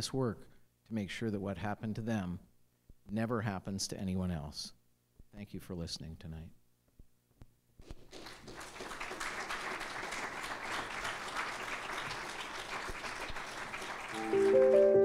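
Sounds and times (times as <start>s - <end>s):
audience applauding: 8.1s - 15.0s.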